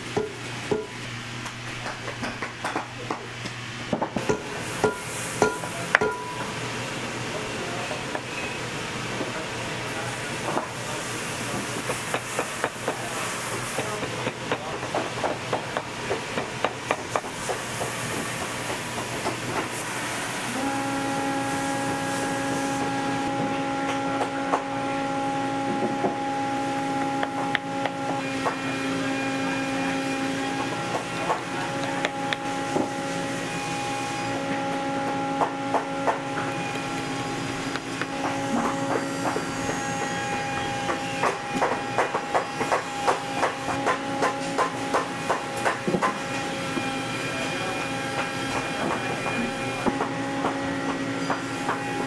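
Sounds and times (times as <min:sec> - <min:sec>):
machine hum: 0:15.6 - 0:52.0.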